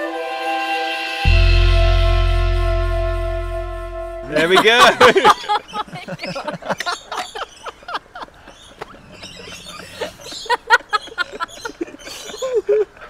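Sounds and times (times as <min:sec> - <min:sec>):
flock of birds chirping: 0:05.4 - 0:13.0.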